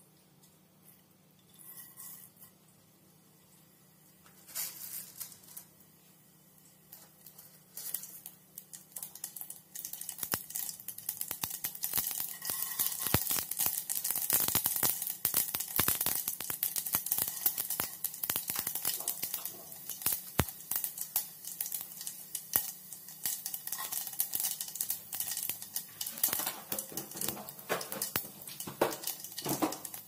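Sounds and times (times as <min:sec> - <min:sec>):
oil sizzling: 0:03.6 - 0:30.0
mustard seeds popping in oil: 0:06.8 - 0:30.0.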